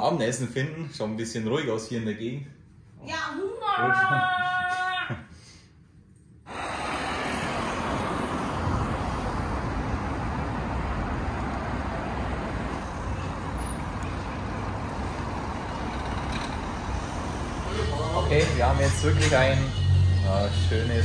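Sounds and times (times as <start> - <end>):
road traffic rumble and hiss: 6.4 - 21.0.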